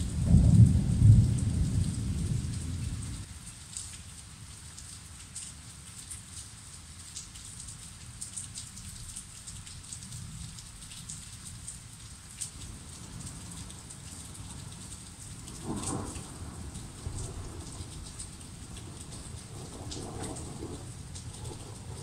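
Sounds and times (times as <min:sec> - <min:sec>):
thunder rumbling: 0:00.0 - 0:03.2, 0:14.2 - 0:22.0
heavy rain falling: 0:00.0 - 0:04.5, 0:06.2 - 0:22.0.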